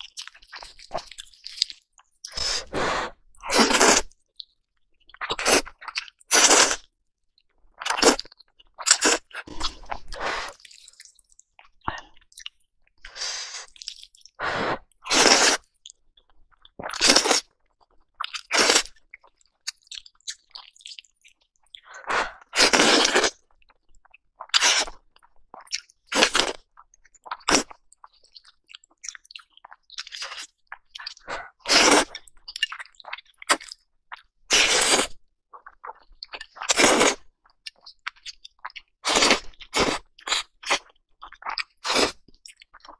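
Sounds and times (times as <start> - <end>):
chewing: 0.0 - 2.5, 3.4 - 12.6, 13.6 - 14.4, 15.5 - 34.3, 34.9 - 42.9
slurping noodles: 2.2 - 4.1, 5.2 - 6.9, 8.9 - 11.0, 13.1 - 15.8, 16.8 - 17.5, 18.3 - 19.0, 21.9 - 23.4, 24.6 - 25.0, 30.2 - 32.2, 34.5 - 35.2, 36.6 - 37.2, 41.6 - 42.2.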